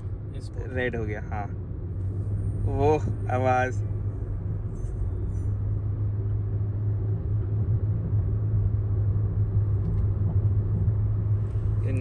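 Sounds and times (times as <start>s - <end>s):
car engine and road rumble: 0.0s - 12.0s.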